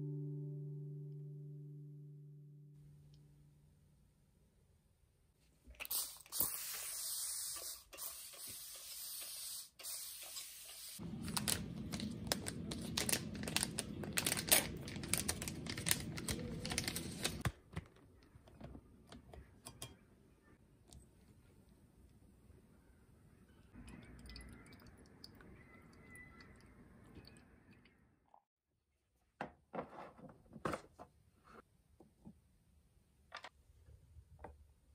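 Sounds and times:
spray bottle hissing: 5.8 - 11.0.

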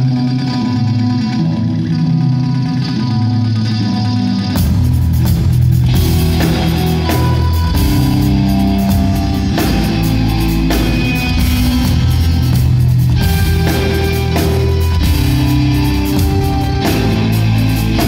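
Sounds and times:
electric guitars playing metal: 0.0 - 18.0
drum kit playing: 4.5 - 18.0.

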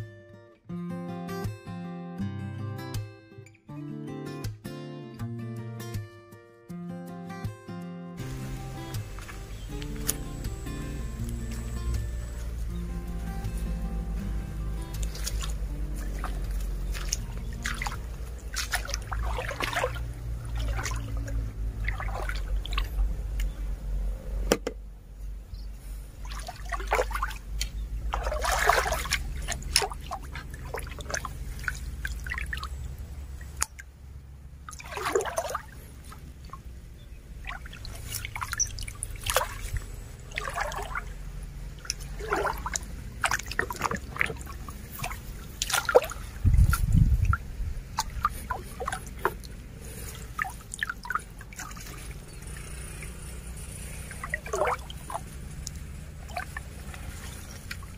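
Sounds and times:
stream water splashing and gurgling: 8.2 - 24.6, 25.8 - 57.9
water dripping: 14.5 - 23.6, 26.2 - 34.0, 34.7 - 36.7, 37.4 - 57.9.

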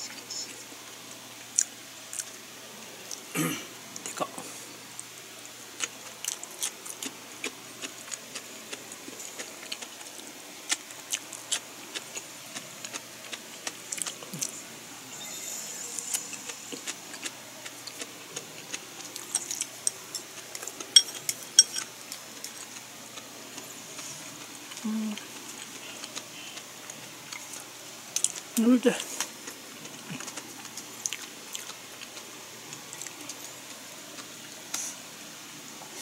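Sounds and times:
person chewing: 1.6 - 2.4, 5.8 - 14.6, 16.1 - 35.0
chopsticks clicking and clinking: 19.3 - 21.9.

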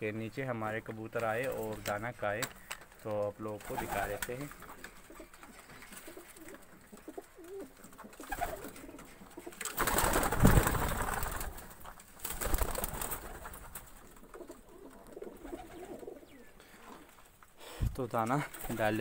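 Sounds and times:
pigeons cooing: 3.7 - 11.6, 12.4 - 17.2.

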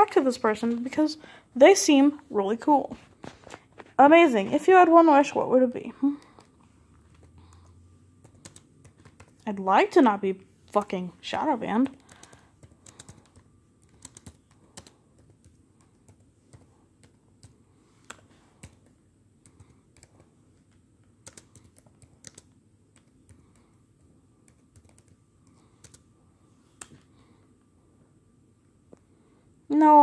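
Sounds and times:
faint laptop keyboard typing: 5.9 - 9.7, 10.7 - 27.3.

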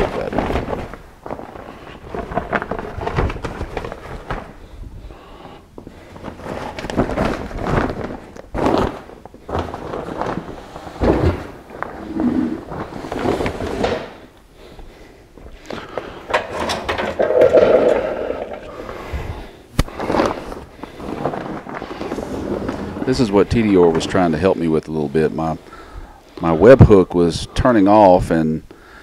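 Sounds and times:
fabric cover rustling: 0.0 - 4.8, 6.0 - 14.2, 19.9 - 24.3.

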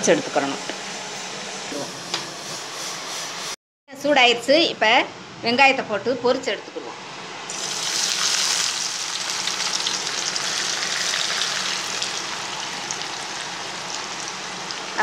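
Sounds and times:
onions deep-frying with loud sizzle: 7.5 - 15.0.

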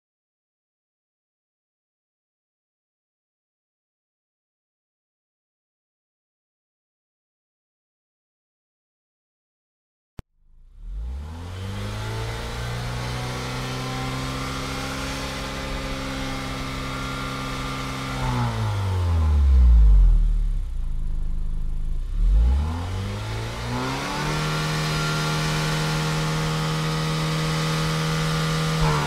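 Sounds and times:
car engine revving: 10.4 - 29.0.

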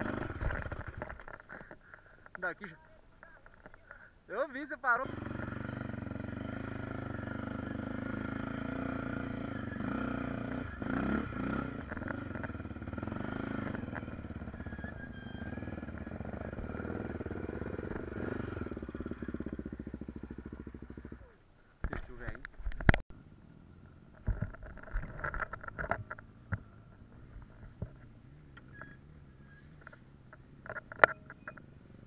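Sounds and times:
motorcycle engine idling: 0.0 - 4.2, 4.9 - 22.2.

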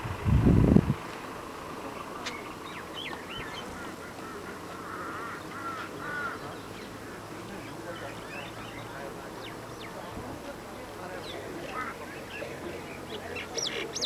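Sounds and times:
low rumble: 0.0 - 1.9
birds chirping: 1.2 - 14.0.

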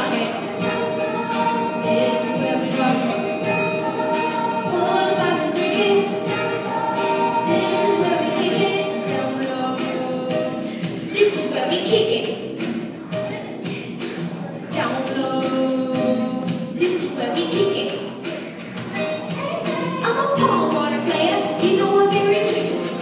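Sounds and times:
boys' choir singing: 0.0 - 11.4
acoustic guitar: 0.0 - 23.0
keyboard: 0.0 - 23.0.

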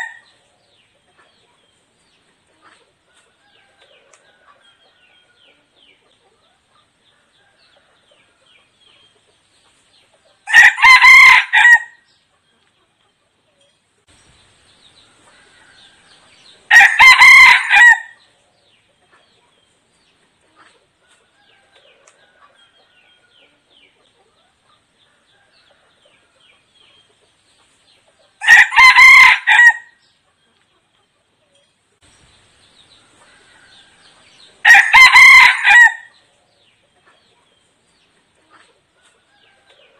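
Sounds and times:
faint chirps and clucks: 0.0 - 39.9
rooster crowing: 10.5 - 12.0, 15.3 - 18.2, 28.4 - 30.0, 33.2 - 36.2.

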